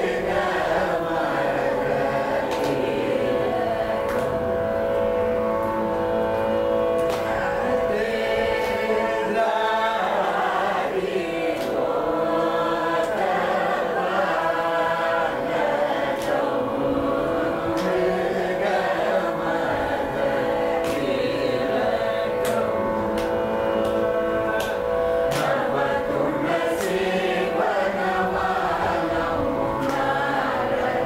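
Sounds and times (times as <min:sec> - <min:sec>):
group singing in unison: 0:00.0 - 0:31.0
steady drone: 0:00.0 - 0:31.0.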